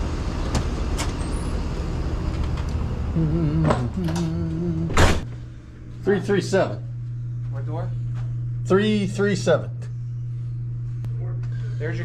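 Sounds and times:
truck engines idling: 0.0 - 6.0
loud door noise: 3.6 - 5.4.

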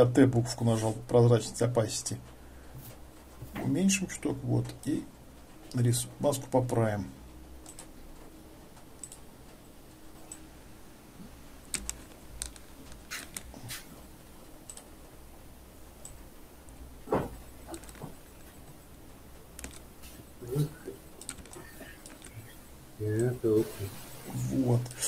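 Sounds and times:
faint low hum: 0.0 - 25.0
computer mouse clicks: 7.6 - 7.9, 8.8 - 9.3, 11.7 - 13.8, 14.7 - 14.9, 19.6 - 19.9, 21.2 - 22.5.

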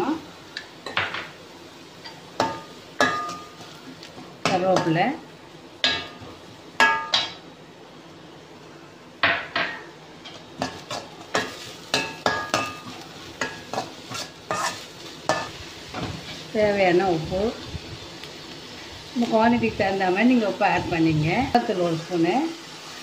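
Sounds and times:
low sizzle of frying: 0.0 - 23.0
metal spoon clanking on pan: 2.0 - 3.8, 5.8 - 7.4, 9.2 - 15.5.

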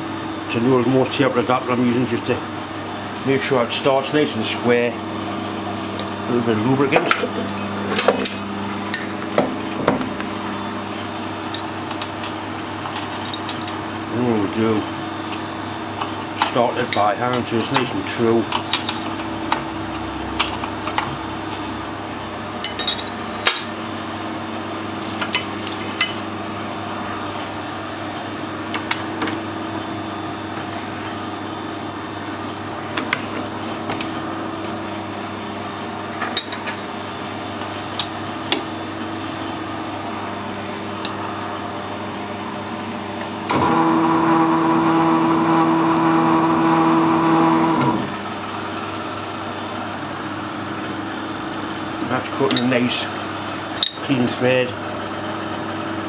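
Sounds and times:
steady hum: 0.0 - 56.0
lathe whine: 36.9 - 53.9.

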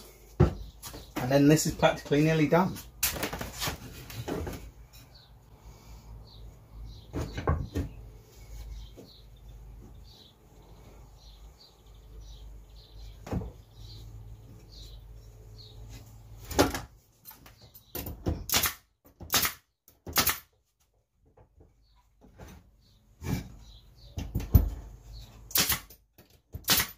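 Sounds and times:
nail gun firing: 18.4 - 20.5, 25.5 - 26.0, 26.6 - 26.9.

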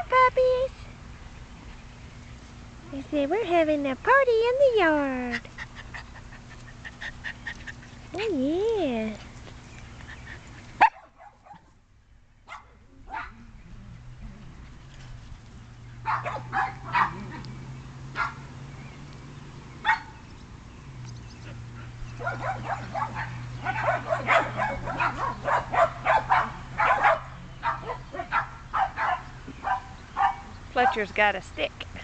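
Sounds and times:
steady low hum: 0.0 - 32.0
dogs barking and yipping: 9.2 - 11.8, 12.4 - 13.5, 15.7 - 18.8, 19.6 - 20.6, 21.4 - 31.2.

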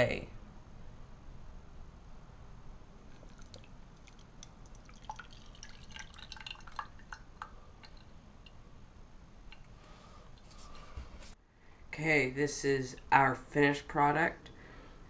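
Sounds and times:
liquid dripping into a glass dish: 3.1 - 8.7.

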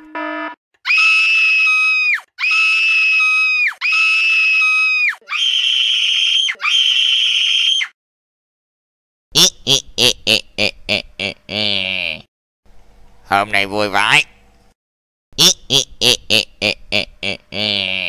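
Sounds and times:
cartoon boy screaming: 0.8 - 8.0.

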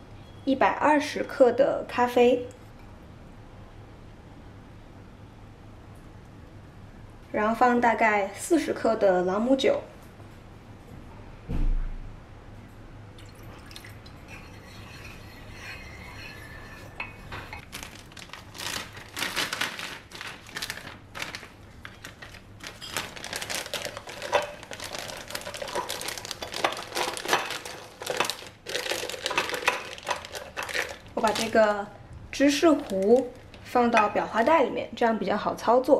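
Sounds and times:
liquid trickling into a dish: 13.2 - 17.4
spatula scraping a bowl: 14.3 - 17.6
plastic crinkling: 17.0 - 34.6.

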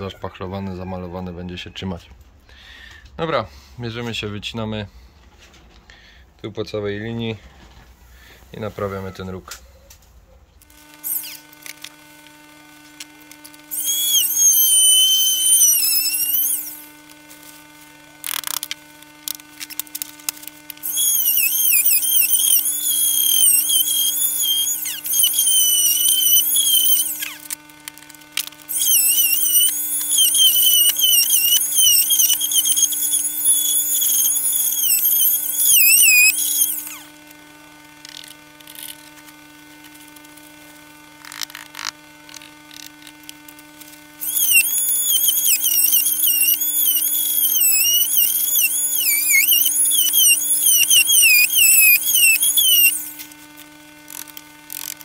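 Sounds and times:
power tool whining through panel: 10.6 - 39.1, 41.0 - 55.0.

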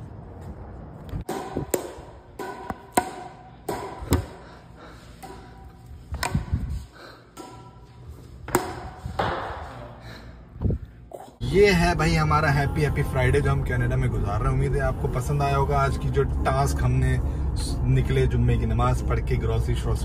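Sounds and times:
rackets hitting shuttlecock: 1.1 - 4.4, 7.3 - 9.8.

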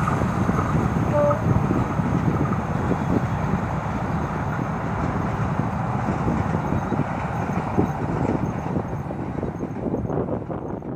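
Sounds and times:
train rumbling over bridge: 0.0 - 10.9.

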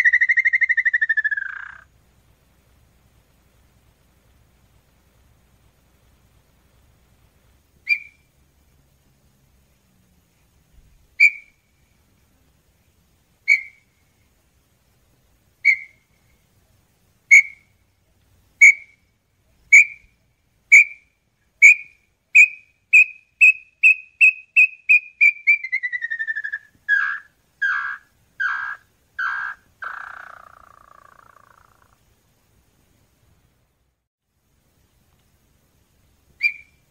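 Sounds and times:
bird whistling song: 0.0 - 1.9, 7.8 - 8.3, 11.2 - 11.7, 13.4 - 14.0, 15.6 - 16.4, 17.3 - 17.8, 18.6 - 19.0, 19.6 - 20.1, 20.7 - 31.9, 36.4 - 36.9.

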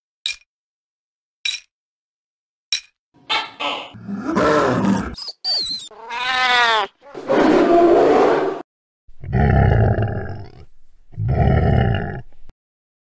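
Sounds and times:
animal cry: 3.3 - 8.6
rough animal growl: 4.0 - 5.2, 7.0 - 8.6, 9.2 - 12.4
low rumbling grunts: 9.2 - 12.4.

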